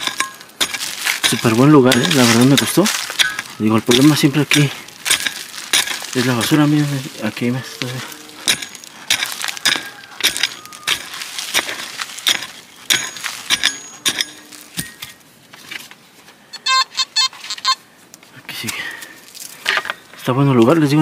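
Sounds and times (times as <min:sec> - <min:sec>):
hand pick digging soil: 0:00.0 - 0:16.0
rapid high beeps: 0:16.5 - 0:17.8.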